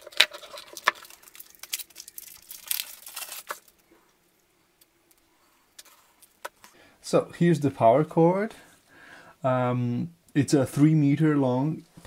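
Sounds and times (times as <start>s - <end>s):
plastic wrap crinkling and tearing: 0.0s - 3.9s.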